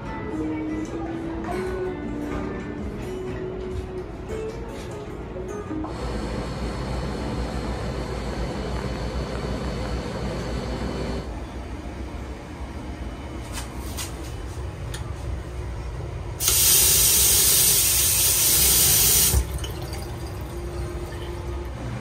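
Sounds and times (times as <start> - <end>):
tap water splashing over hand: 19.0 - 20.6.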